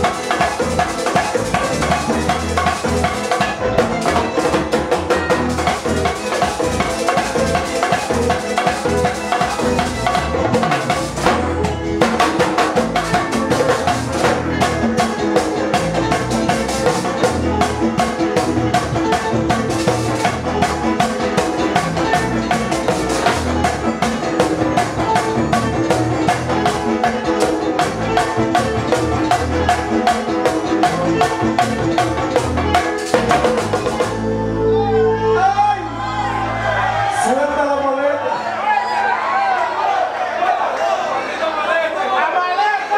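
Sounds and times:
drums struck with sticks: 0.0 - 34.2
live latin band playing: 0.0 - 42.9.

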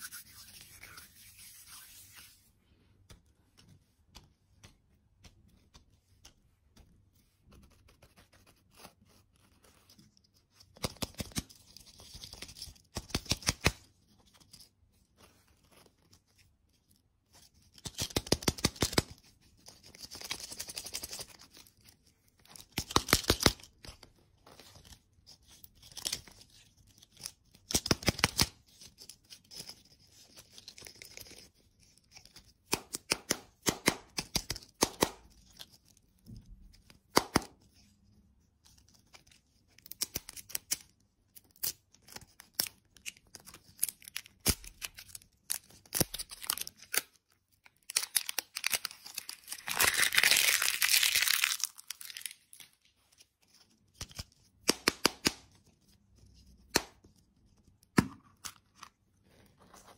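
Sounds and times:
plastic wrapper crinkling and tearing: 39.0 - 54.5.

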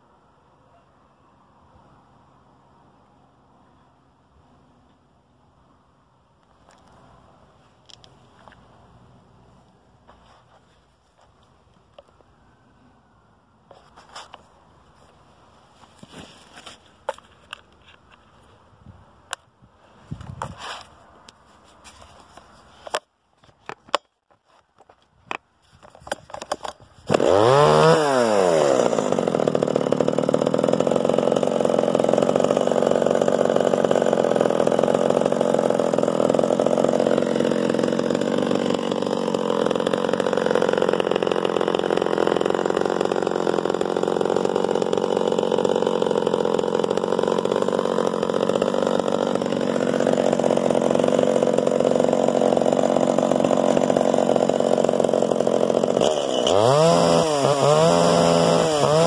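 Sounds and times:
chainsaw engine revving: 26.3 - 59.0.

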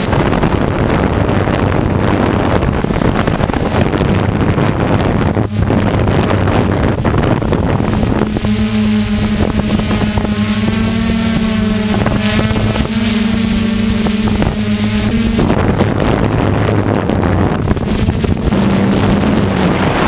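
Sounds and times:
drone motors humming: 0.0 - 20.0
wind rushing over microphone: 0.0 - 20.0.

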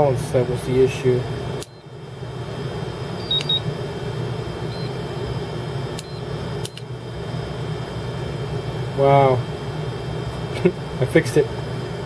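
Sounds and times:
steady low hum: 0.0 - 12.0
charger key-press beeps: 1.6 - 1.9, 3.2 - 3.7, 4.7 - 5.0, 6.0 - 6.9.

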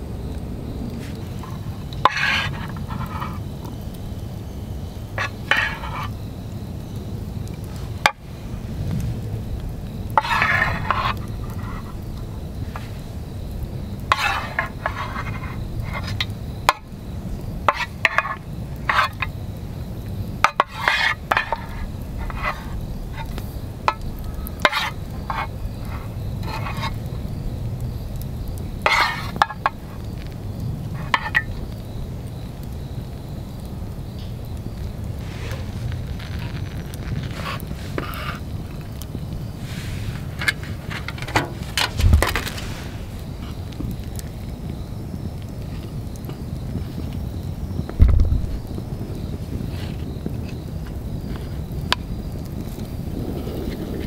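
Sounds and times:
wet spoon scraping scoops: 0.9 - 3.8, 5.1 - 6.2, 10.1 - 13.1, 14.0 - 16.9, 17.6 - 19.4, 20.4 - 27.2, 28.8 - 30.4, 35.1 - 44.3.

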